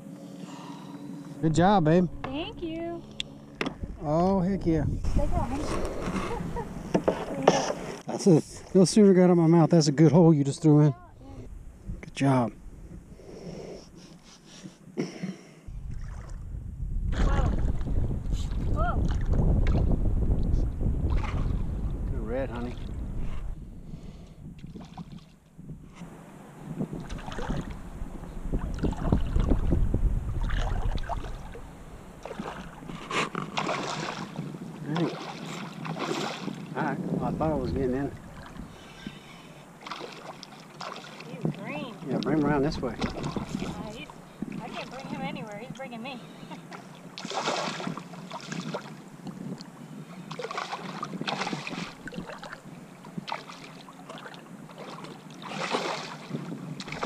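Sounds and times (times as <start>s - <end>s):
wind buffeting microphone: 1.4s - 9.2s, 10.9s - 13.4s, 15.7s - 39.9s, 40.8s - 53.4s, 55.7s - 57.0s
fish splashing at water surface: 32.2s - 34.4s, 35.0s - 36.6s, 39.8s - 41.3s, 47.2s - 49.0s, 50.3s - 52.6s, 53.2s - 57.0s.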